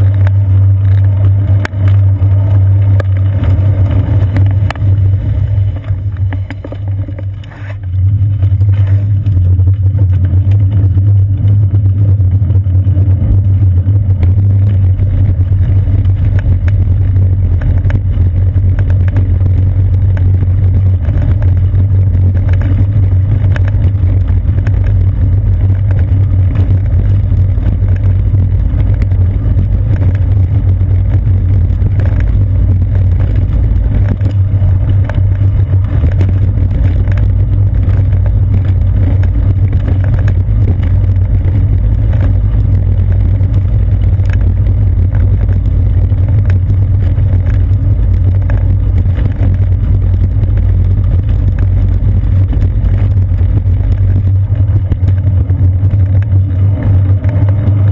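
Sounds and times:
road vibration rumble: 0.0 - 57.9.

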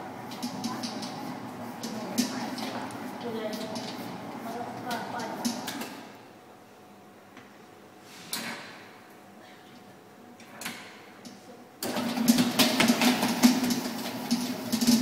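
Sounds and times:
mixer motor humming and rattling: 0.0 - 6.2, 11.8 - 15.0.

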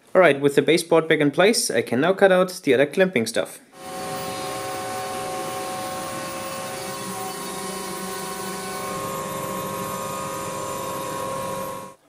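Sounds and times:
router spindle milling wood: 3.8 - 12.0.

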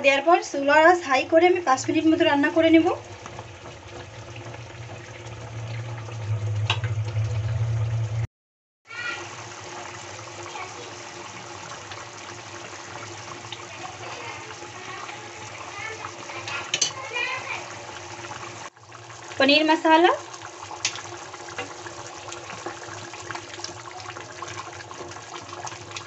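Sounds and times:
curry bubbling at a boil: 0.1 - 8.2, 8.9 - 26.0
steady low hum: 3.0 - 8.3.

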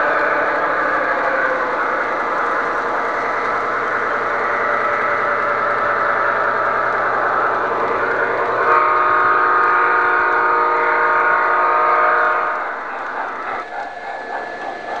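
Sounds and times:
long multi-tone train horn: 0.0 - 1.0, 8.4 - 12.8
model train running on track: 0.0 - 15.0.

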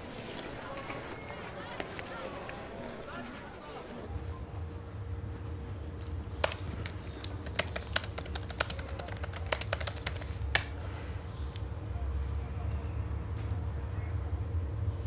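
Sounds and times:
low steady hum: 4.1 - 15.0
typing on laptop keyboard: 6.0 - 10.8.

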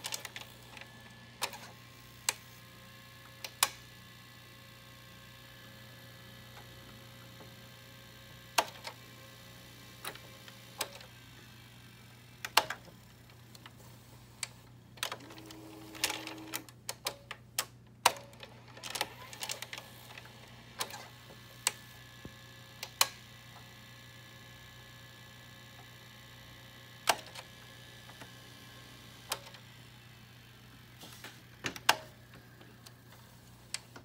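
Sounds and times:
tape mechanism clicking and clunking: 0.0 - 2.6, 3.2 - 4.0, 8.4 - 9.1, 9.9 - 11.2, 12.4 - 23.7, 27.0 - 29.8, 30.9 - 34.0.

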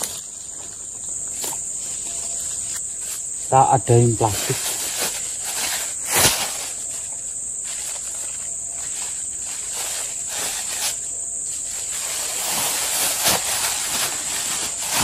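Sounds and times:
insects droning: 0.0 - 15.0
plastic bag rustling: 0.0 - 15.0
plastic bag snapped open: 5.8 - 6.8.

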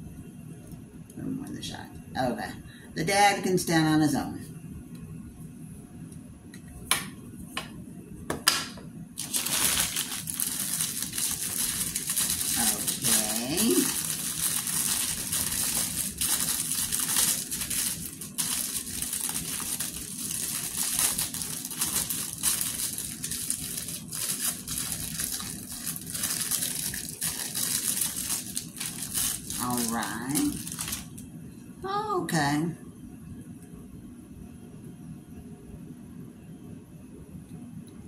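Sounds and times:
packaging crinkling and rustling: 9.2 - 31.2.

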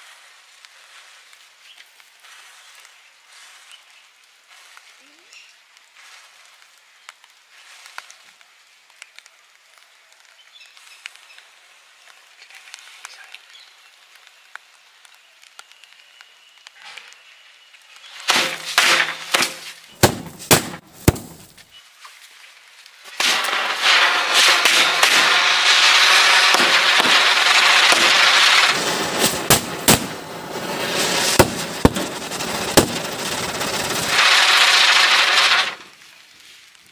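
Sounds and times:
ground firework hissing: 16.7 - 21.6, 23.0 - 36.6
burning matchsticks crackling: 17.8 - 21.6, 23.0 - 36.2
firecracker bangs: 18.2 - 21.6, 23.1 - 35.8.

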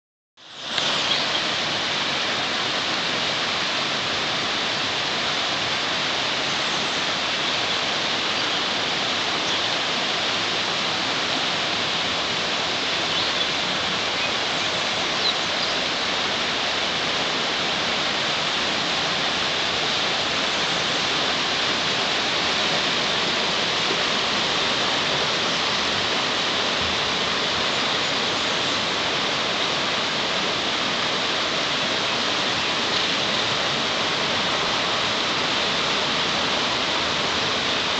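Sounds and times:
river rushing over rocks: 0.4 - 37.9.

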